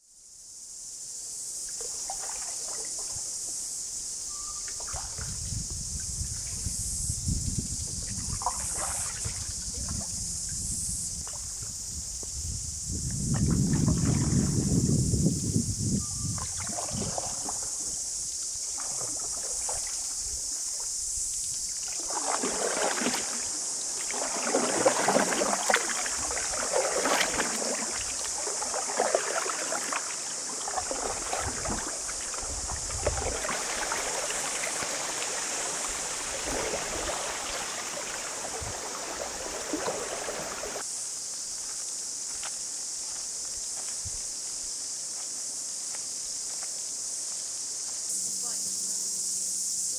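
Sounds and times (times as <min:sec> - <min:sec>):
steady high-pitched hiss: 0:00.0 - 0:49.9
paddles splashing in water: 0:01.7 - 0:03.6, 0:04.3 - 0:05.4, 0:08.1 - 0:10.2, 0:13.3 - 0:14.8, 0:16.3 - 0:40.8.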